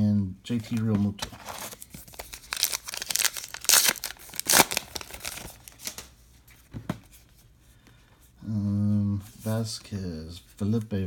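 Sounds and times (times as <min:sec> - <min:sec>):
wrapper tearing and crinkling: 0:01.4 - 0:06.0.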